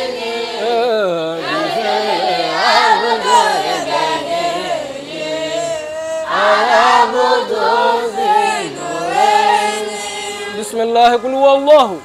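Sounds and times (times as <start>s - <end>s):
children's choir chanting: 0.0s - 11.3s.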